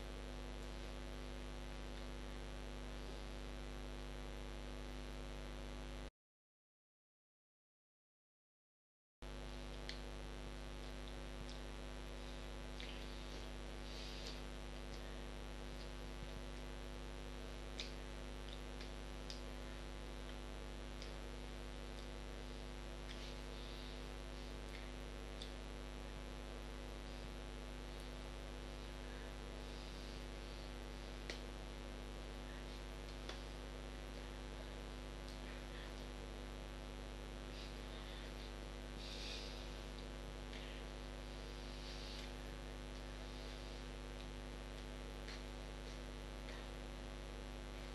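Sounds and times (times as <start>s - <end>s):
electrical mains hum: 0.0s - 6.1s, 9.2s - 47.9s
constant hiss: 9.9s - 47.9s.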